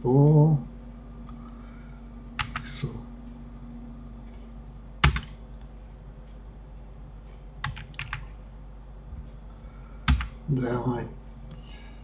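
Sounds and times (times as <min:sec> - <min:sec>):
low steady hum: 0:00.0 - 0:12.0
computer keyboard keystrokes: 0:02.4 - 0:02.7, 0:05.0 - 0:05.4, 0:07.6 - 0:08.4, 0:10.1 - 0:10.4.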